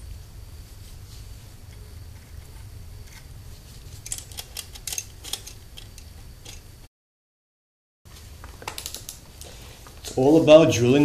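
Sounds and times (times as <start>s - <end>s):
small metal parts clicking: 4.0s - 6.6s.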